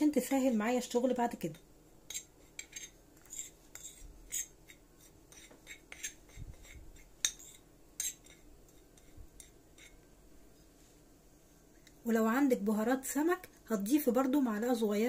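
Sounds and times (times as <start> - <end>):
spoon scraping ceramic plate: 2.0 - 10.0.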